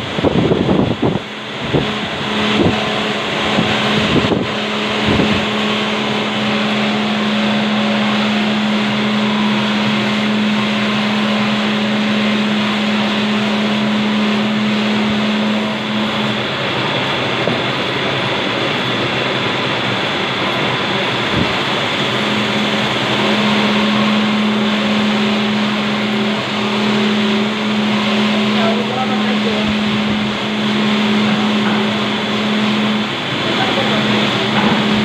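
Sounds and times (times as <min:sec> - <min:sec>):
band saw running: 0:00.0 - 0:35.0.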